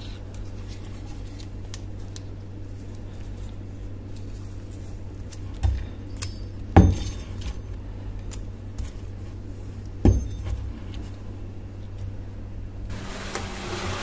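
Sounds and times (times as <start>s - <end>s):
steady low hum: 0.0s - 14.0s
clinks of wire being twisted: 5.3s - 8.4s.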